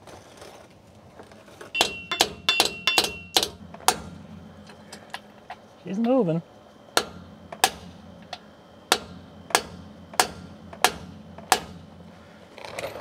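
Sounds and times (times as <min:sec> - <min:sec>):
hammer striking steel: 0:01.8 - 0:04.2, 0:07.0 - 0:08.0, 0:08.9 - 0:11.9.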